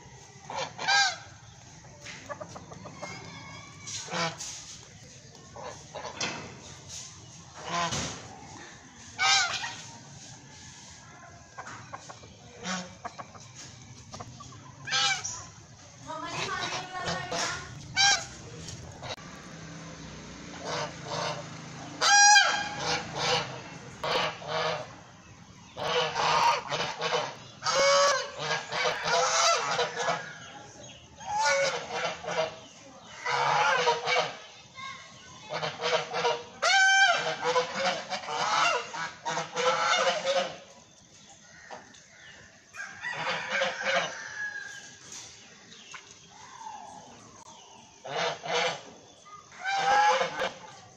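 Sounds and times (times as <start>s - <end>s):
geese honking: 0.0s - 1.6s, 2.2s - 4.7s, 5.4s - 8.4s, 9.2s - 10.0s, 11.5s - 13.4s, 14.4s - 15.5s, 16.1s - 19.3s, 20.5s - 25.0s, 25.7s - 34.5s, 35.4s - 40.8s, 42.8s - 44.7s, 48.0s - 50.9s.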